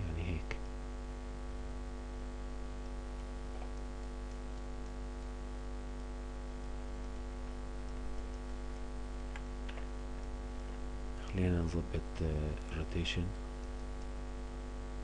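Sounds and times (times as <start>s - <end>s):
electrical mains hum: 0.0s - 15.0s
faint clicks: 2.8s - 6.2s, 7.8s - 9.9s, 13.3s - 14.2s.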